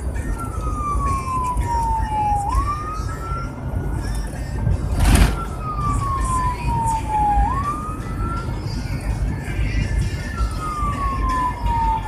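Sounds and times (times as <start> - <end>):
vehicle rumble on road: 0.0 - 12.0
electronic siren wailing: 0.4 - 3.5, 5.0 - 8.6, 10.6 - 12.0
loud rushing burst: 4.9 - 5.7.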